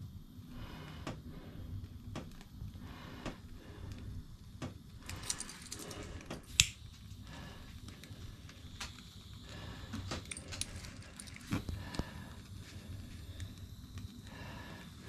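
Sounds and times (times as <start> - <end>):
light metallic jingling: 5.1 - 6.0
lighter clicking: 6.5 - 7.0.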